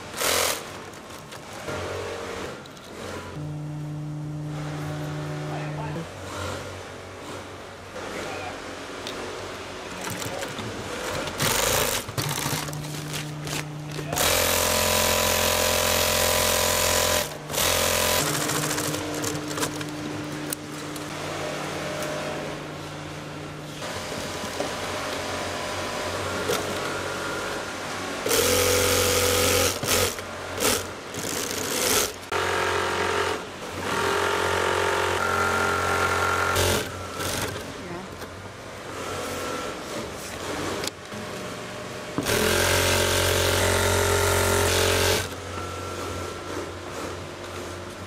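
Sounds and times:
industrial sewing machines stitching: 0.0 - 3.4, 10.0 - 22.6, 23.7 - 37.8, 42.2 - 45.4.

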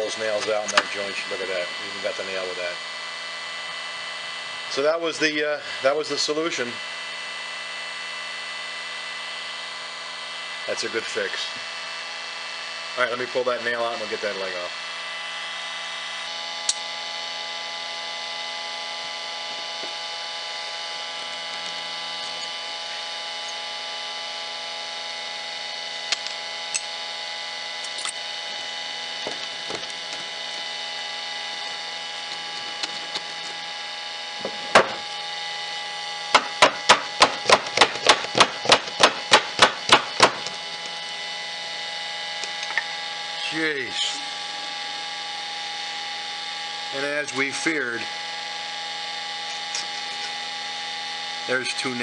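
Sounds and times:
steady hum: 0.0 - 52.0
sharp wooden knocks: 34.5 - 35.0, 36.3 - 40.5.

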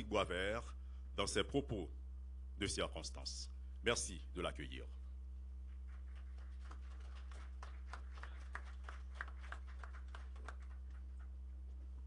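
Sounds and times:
low hum: 0.0 - 12.0
scattered applause: 5.9 - 11.3.

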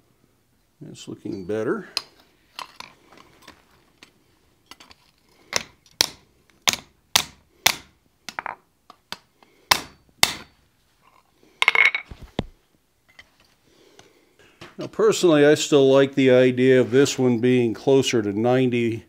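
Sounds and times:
hammer striking steel on anvil: 9.7 - 10.5.

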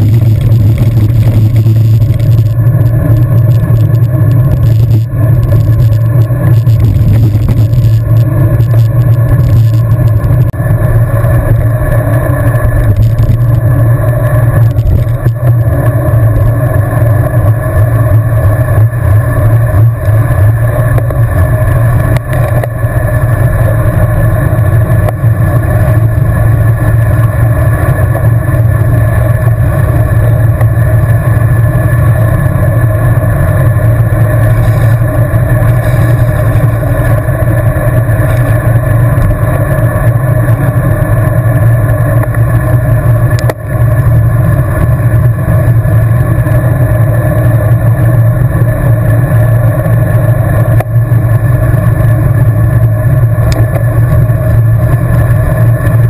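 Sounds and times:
road noise: 0.0 - 56.0
wind rush on microphone: 0.0 - 56.0.

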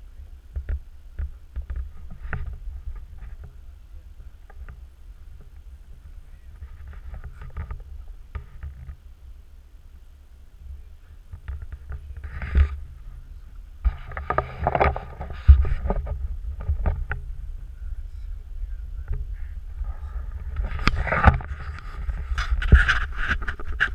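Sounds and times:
wind rumble on microphone: 0.0 - 23.9
camera handling knocks and scraping: 13.9 - 17.2, 20.5 - 23.9.

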